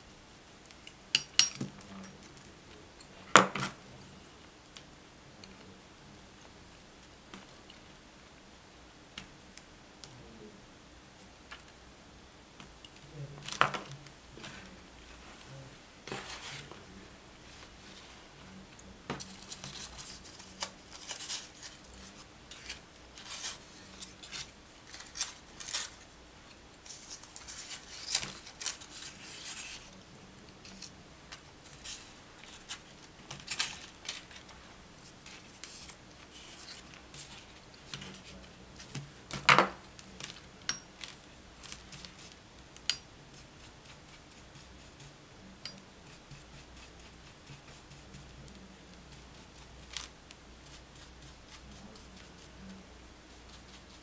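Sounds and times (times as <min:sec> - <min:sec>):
hands handling paper: 0:17.6 - 0:26.2, 0:26.8 - 0:54.0.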